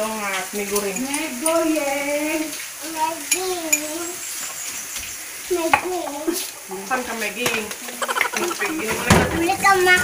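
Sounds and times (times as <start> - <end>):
child's sing-song voice: 1.4 - 4.2, 9.1 - 10.0
sponge scrubbing dishes: 7.8 - 10.0.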